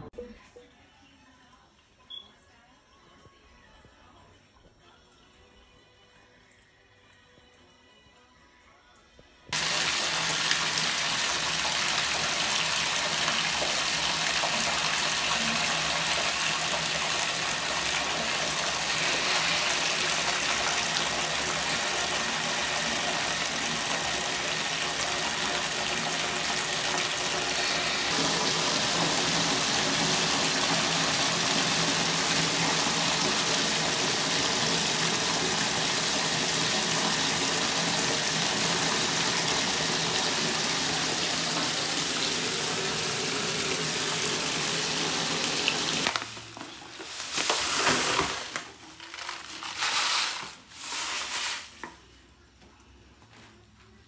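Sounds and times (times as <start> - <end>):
water gushing into bathtub: 9.5 - 51.1.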